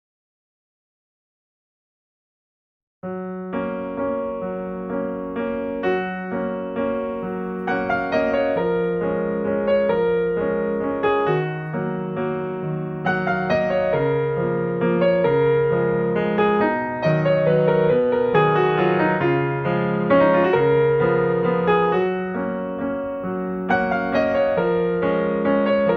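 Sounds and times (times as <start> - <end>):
keyboard music: 3.4 - 25.9.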